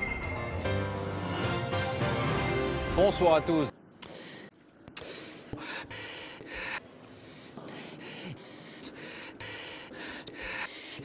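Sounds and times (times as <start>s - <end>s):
small mouth clicks: 4.0s - 4.2s
man breathing: 4.0s - 11.0s.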